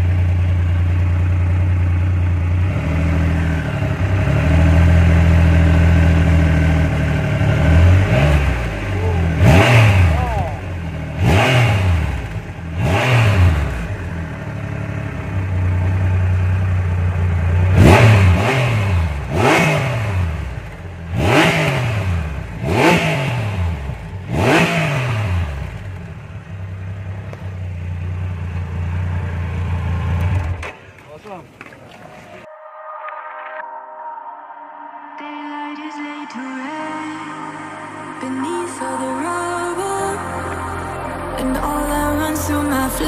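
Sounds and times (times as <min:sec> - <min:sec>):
motorcycle engine idling and revving: 0:00.0 - 0:32.5.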